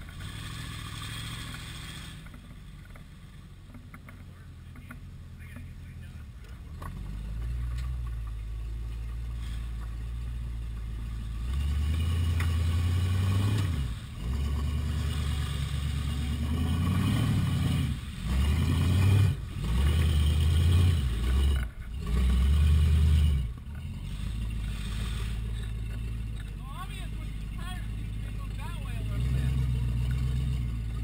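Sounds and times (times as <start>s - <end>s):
engine revving under load: 0.0s - 3.4s, 4.8s - 31.0s.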